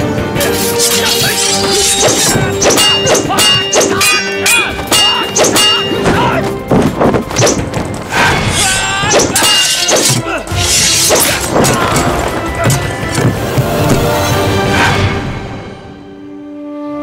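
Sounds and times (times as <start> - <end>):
film music score: 0.0 - 17.0
fight blows and thuds: 4.8 - 8.2.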